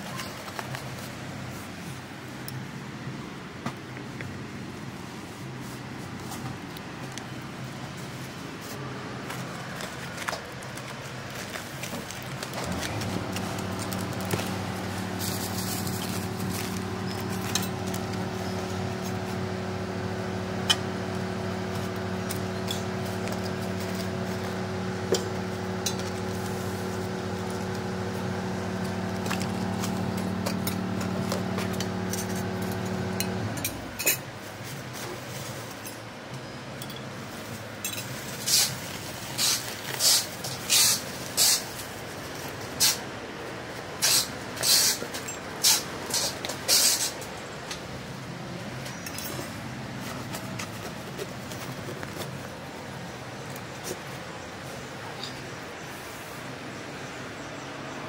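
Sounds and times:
plastic bags crinkling: 9.4 - 33.1
steady low hum: 10.9 - 34.0.

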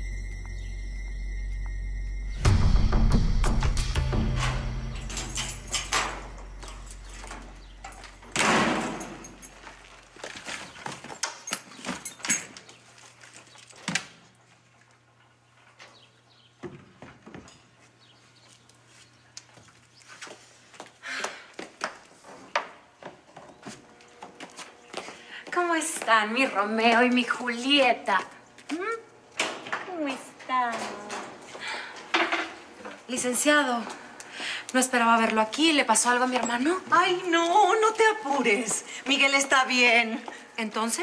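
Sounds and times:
music cue: 0.0 - 7.0
door opening: 2.4 - 9.6
footsteps: 16.8 - 28.9.

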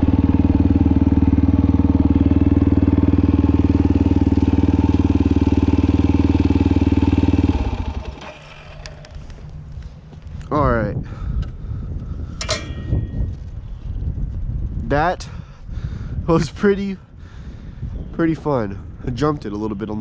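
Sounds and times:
dirt bike engine running: 0.0 - 9.9, 12.4 - 13.8.

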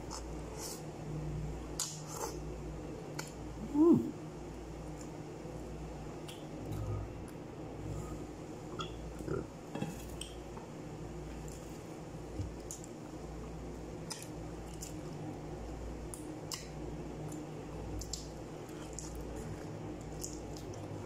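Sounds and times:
steady low hum: 0.0 - 21.0
wet chewing and lip-smacking: 16.1 - 21.0.

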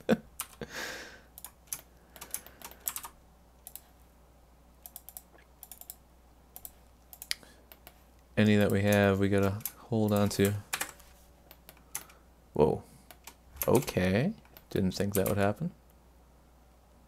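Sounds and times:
keyboard keystrokes and clicks: 0.3 - 0.6, 1.4 - 3.9, 4.8 - 6.0, 6.6 - 8.0, 13.1 - 15.5.

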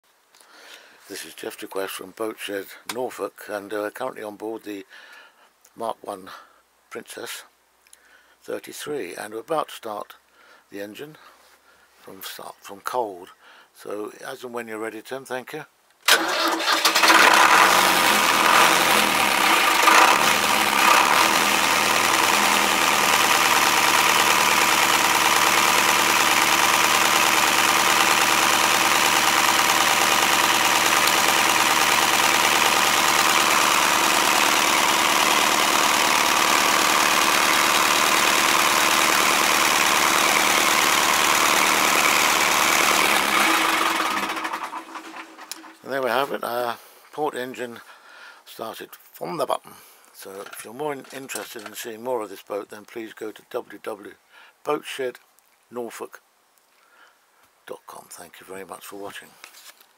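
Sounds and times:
boat engine starting and idling: 16.1 - 45.8.

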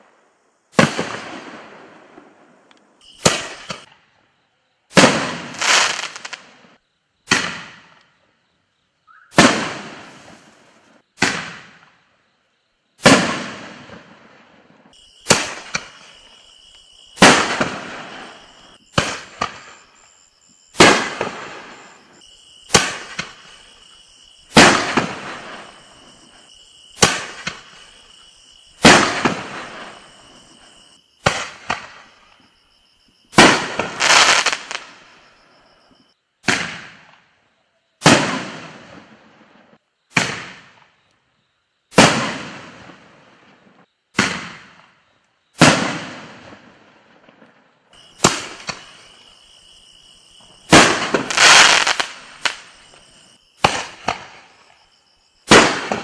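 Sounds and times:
firework bangs: 0.7 - 4.0, 4.9 - 8.0, 9.3 - 12.0, 13.0 - 19.9, 20.7 - 28.1, 28.8 - 32.2, 33.3 - 35.2, 36.4 - 37.2, 38.0 - 40.9, 41.9 - 45.0, 45.6 - 49.3, 50.4 - 54.7, 55.4 - 56.0.

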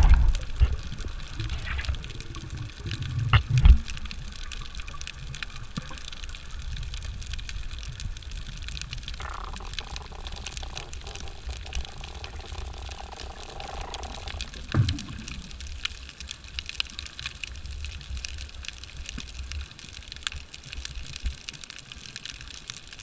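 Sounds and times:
faint steady hum: 0.0 - 21.1
faint crackling clicks: 0.0 - 23.0
underwater rumble of moving water: 0.0 - 23.0
thump: 14.7 - 15.3.

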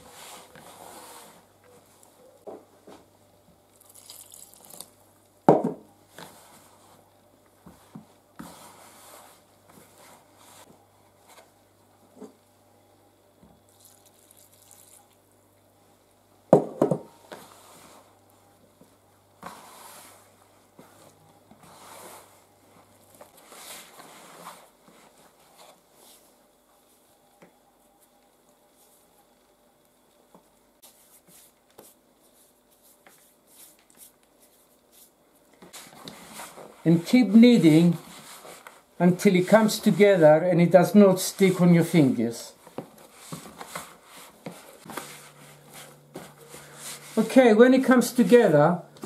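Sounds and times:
milk pouring from jug: 3.8 - 4.9, 13.7 - 15.2.

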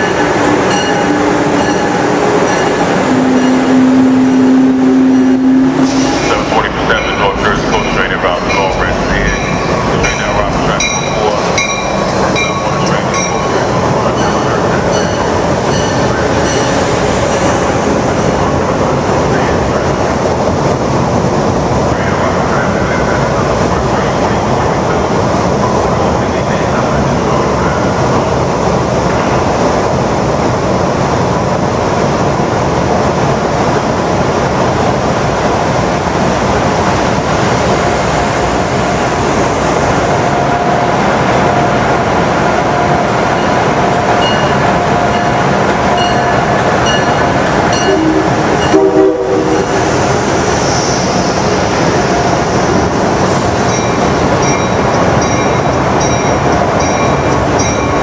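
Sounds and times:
train wheels rumbling and rattling: 0.0 - 58.0.

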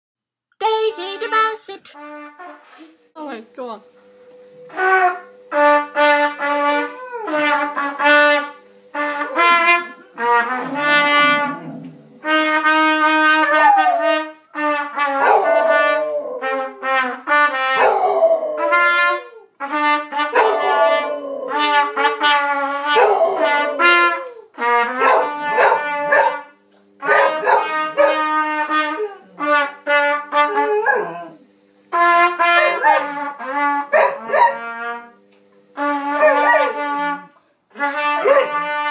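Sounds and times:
trumpet notes: 0.6 - 38.9
dog howling: 6.4 - 7.6, 13.2 - 14.3, 15.1 - 16.7, 17.8 - 19.5, 20.4 - 21.9, 22.9 - 26.4, 30.4 - 31.4, 36.1 - 36.8.

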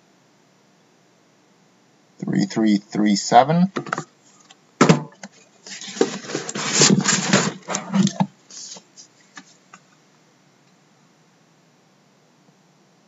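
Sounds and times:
tin scraping against cardboard: 5.6 - 8.9.

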